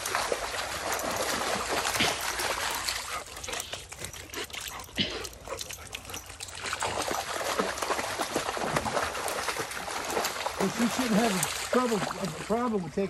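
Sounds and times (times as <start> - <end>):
creek water rushing over rocks: 0.0 - 3.7, 6.5 - 13.0
dog splashing through water: 0.0 - 12.8.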